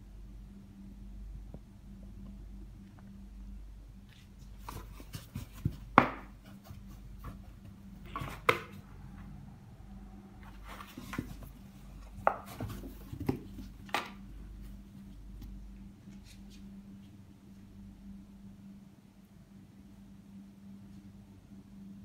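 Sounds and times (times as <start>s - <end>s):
cats scratching and thumping cardboard: 4.4s - 8.8s, 10.4s - 14.8s.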